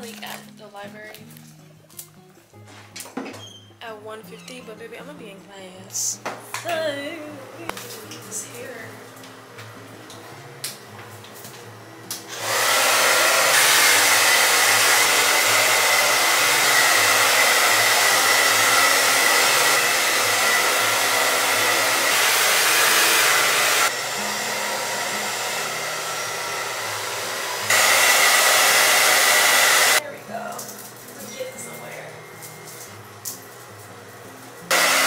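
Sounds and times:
hair dryer blowing: 0:12.1 - 0:30.0, 0:34.7 - 0:35.0.

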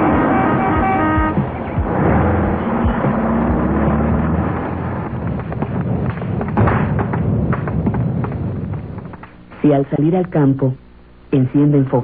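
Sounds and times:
car horn tooting: 0:00.0 - 0:01.7
car engine running: 0:00.0 - 0:09.3.

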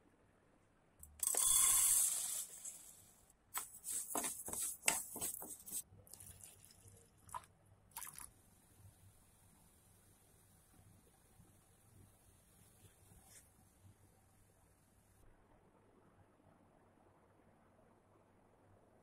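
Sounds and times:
steel spoon scooping lentils: 0:01.0 - 0:03.0, 0:03.6 - 0:05.8.

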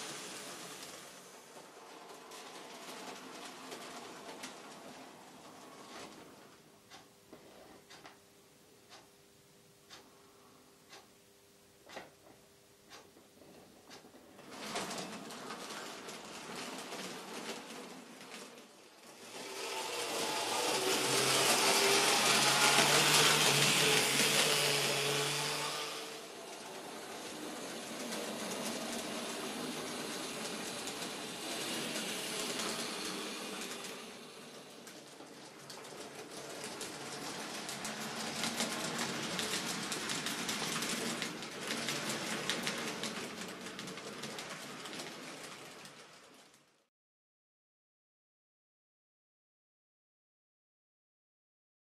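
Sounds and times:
model train motor whine: 0:00.0 - 0:04.4, 0:18.5 - 0:46.2
wheels rattling over track: 0:00.0 - 0:06.4, 0:14.2 - 0:46.8.

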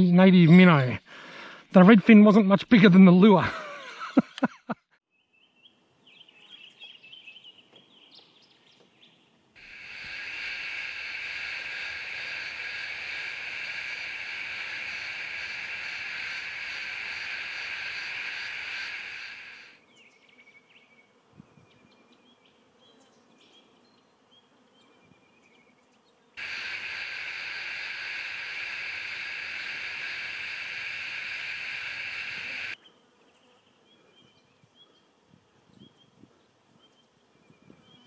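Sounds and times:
faint outdoor ambience: 0:05.1 - 0:38.0
loud insect buzz: 0:09.6 - 0:19.8, 0:26.4 - 0:33.7.

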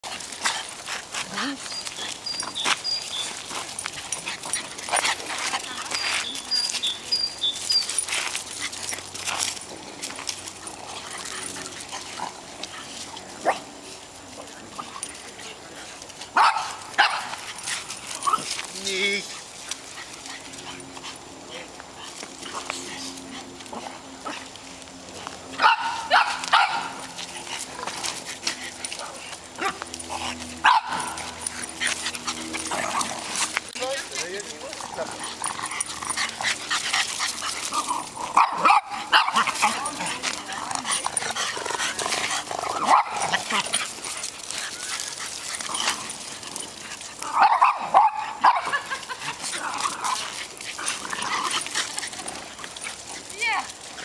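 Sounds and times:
small dogs barking and yipping: 0:00.0 - 0:54.0
small dogs barking: 0:16.3 - 0:18.5, 0:25.5 - 0:28.0, 0:28.8 - 0:33.5, 0:37.7 - 0:44.1, 0:44.7 - 0:52.5.

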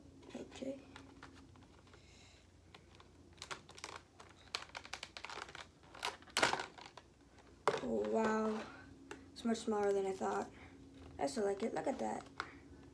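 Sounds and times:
plastic packaging crackling: 0:02.7 - 0:08.8, 0:09.8 - 0:12.9.

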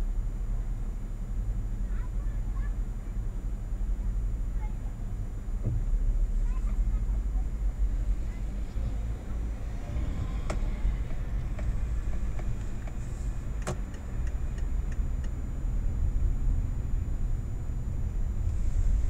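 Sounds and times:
car engine rumble: 0:00.0 - 0:19.0
road noise inside car: 0:00.0 - 0:19.0.

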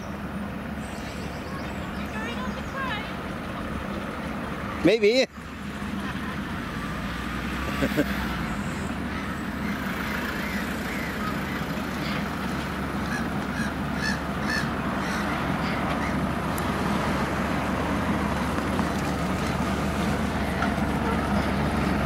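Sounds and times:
geese honking: 0:08.7 - 0:16.4.

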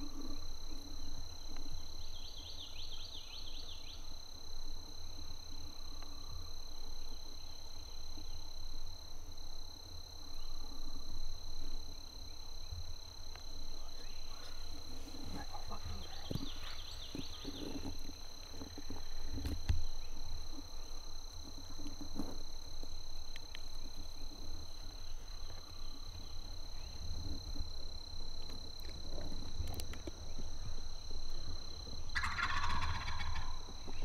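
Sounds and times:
chorus of calling animals: 0:32.2 - 0:33.7.

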